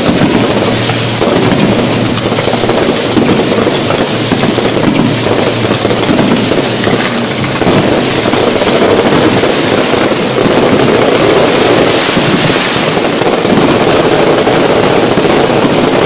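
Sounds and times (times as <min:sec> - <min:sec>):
fireworks bursting and crackling: 0:00.0 - 0:16.0.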